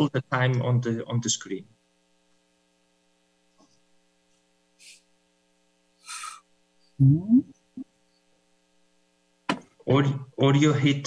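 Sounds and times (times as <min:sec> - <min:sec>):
faint hum: 0:00.0 - 0:11.0
breathy hisses: 0:04.8 - 0:05.1, 0:06.0 - 0:06.4
person saying hm: 0:06.1 - 0:06.4, 0:07.0 - 0:07.5.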